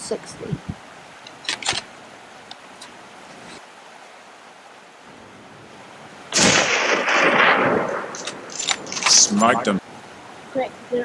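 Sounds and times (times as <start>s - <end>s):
steady outdoor hiss: 0.0s - 11.0s
rifle shot with rolling echo: 6.3s - 9.2s.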